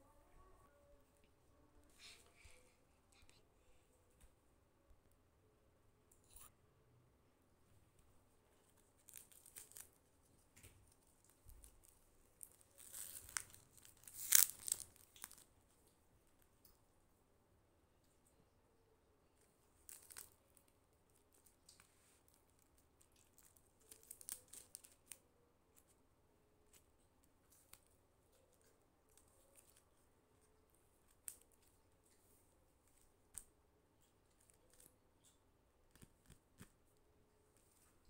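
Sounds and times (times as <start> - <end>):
paper cutouts crinkling and clicking: 8.6 - 15.5, 19.4 - 26.0, 32.8 - 36.8.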